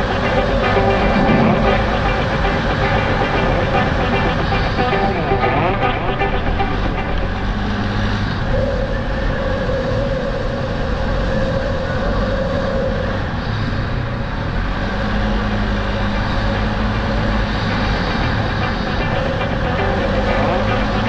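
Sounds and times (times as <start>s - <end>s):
high steady whine: 0.0s - 9.5s, 14.9s - 21.0s
atv engine drone: 0.0s - 9.9s, 14.2s - 21.0s.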